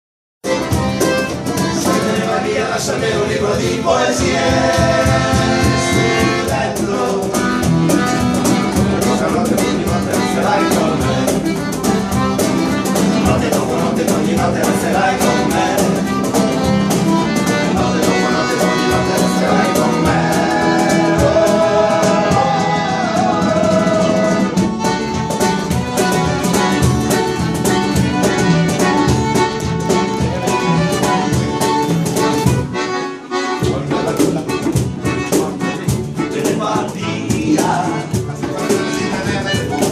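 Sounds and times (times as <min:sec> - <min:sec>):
hand drum: 0:00.4 - 0:02.7, 0:04.0 - 0:32.9, 0:33.6 - 0:39.9
acoustic guitar strumming: 0:00.4 - 0:39.9
person singing: 0:17.6 - 0:24.6.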